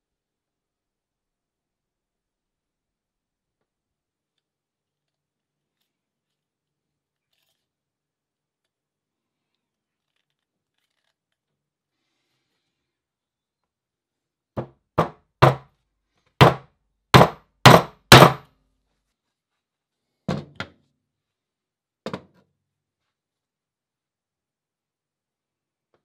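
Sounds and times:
hammer blows: 17.2 - 18.4.

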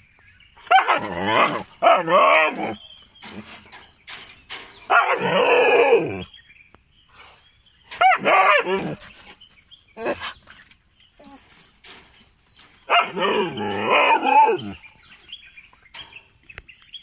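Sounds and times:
dog barking: 0.7 - 2.2, 4.9 - 5.4, 8.0 - 9.0, 12.9 - 14.2.

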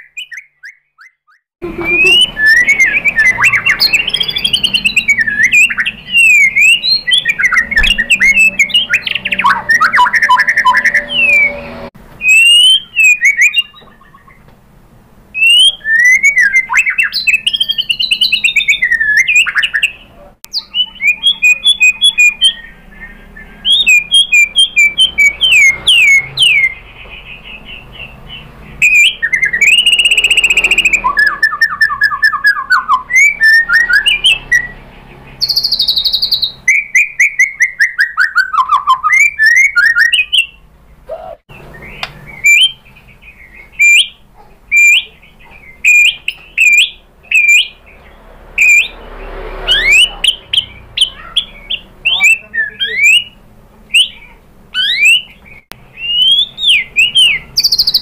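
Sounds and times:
songbird singing trills and whistles: 0.0 - 14.5, 15.3 - 58.0
bird short sharp notes: 1.1 - 14.5.

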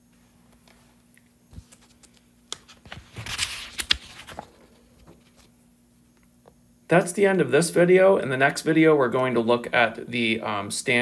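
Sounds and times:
faint electrical hum: 0.0 - 11.0.

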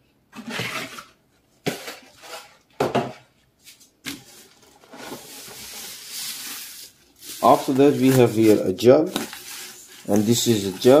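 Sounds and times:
cardboard packing rustling: 3.6 - 11.0.

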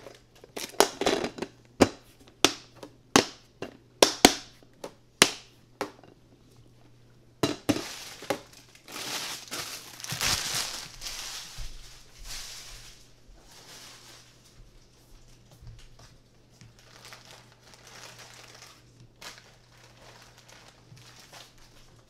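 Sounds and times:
rustling and scuffing: 7.7 - 17.1.

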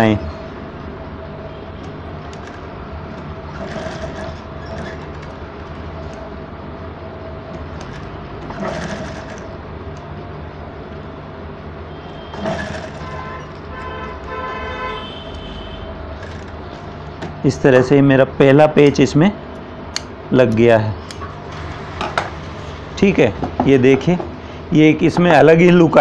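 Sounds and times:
sewing machine running: 3.4 - 6.2, 7.7 - 9.5, 12.3 - 14.5, 16.2 - 16.6.

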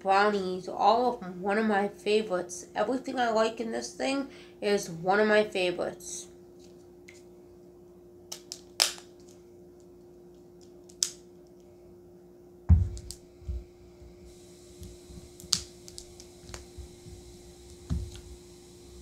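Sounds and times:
faint steady hum: 0.0 - 19.0
heavy thump: 12.7 - 13.7.

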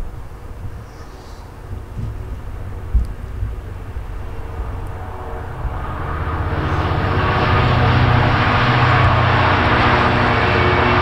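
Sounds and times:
diesel locomotive engine drone: 0.0 - 11.0
rushing noise of train: 0.0 - 11.0.

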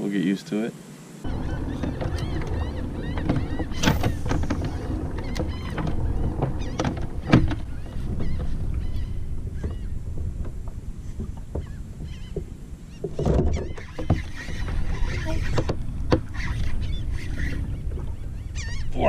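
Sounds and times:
faint squeaks: 1.2 - 19.0
kayak low rumble: 1.2 - 19.0
sharp knocks: 1.3 - 8.6.

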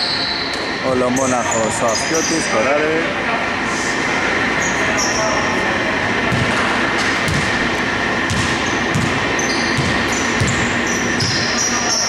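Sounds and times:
basketball bouncing on wooden floor: 6.3 - 6.6, 7.3 - 7.6, 8.3 - 11.5
sneaker squeaks on floor: 8.3 - 12.0.

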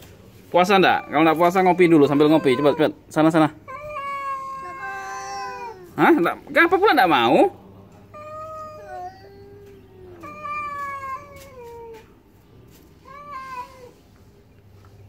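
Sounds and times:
cat yowling: 0.6 - 7.3, 8.1 - 12.1, 13.0 - 14.0.

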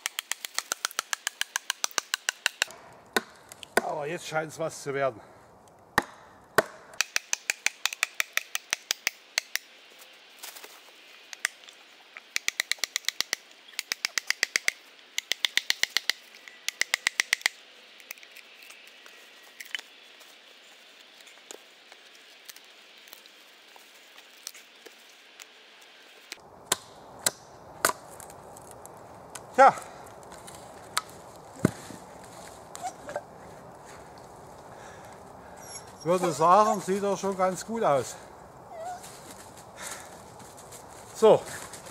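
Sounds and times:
log cracking apart: 0.0 - 3.9, 11.3 - 20.0, 26.2 - 32.5.

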